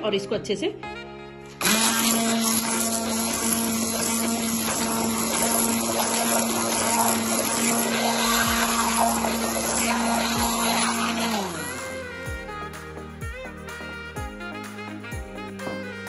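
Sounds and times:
electric mixer switching on: 0:01.5 - 0:12.8
electric mixer humming: 0:01.5 - 0:16.0.

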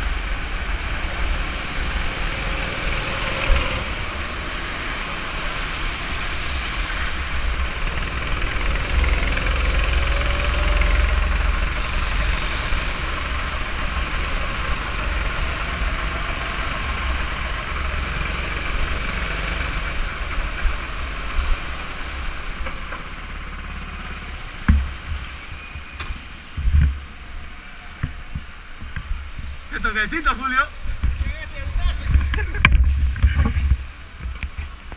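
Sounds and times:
go-kart engine running: 0:00.0 - 0:25.7.

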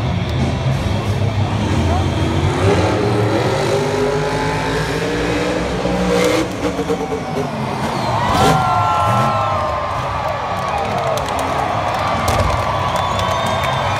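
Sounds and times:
truck engine revving hard: 0:00.6 - 0:10.6.

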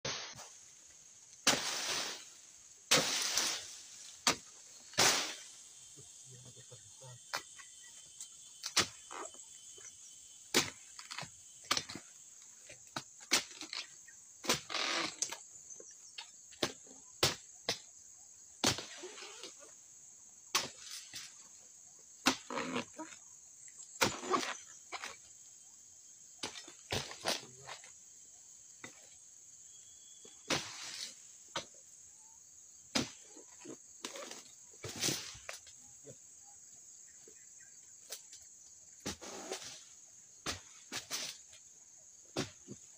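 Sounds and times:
fronds rustling: 0:00.0 - 0:06.0
high insect drone: 0:00.1 - 0:42.9.

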